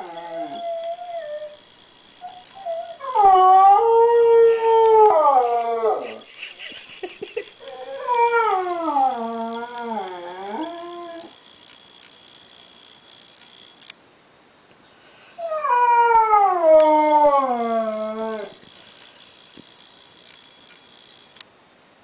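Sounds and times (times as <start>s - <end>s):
dog howling: 0.0s - 1.6s, 2.2s - 6.3s, 7.6s - 11.4s, 15.3s - 18.6s.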